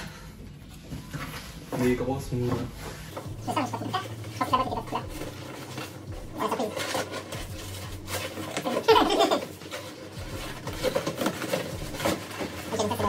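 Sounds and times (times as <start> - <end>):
paper rustling: 0.8 - 13.0
cardboard box flaps scraping: 5.0 - 13.0.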